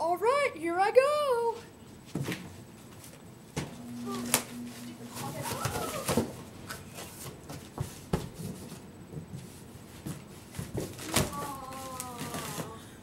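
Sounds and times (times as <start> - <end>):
long falling pitched sound: 3.7 - 6.7.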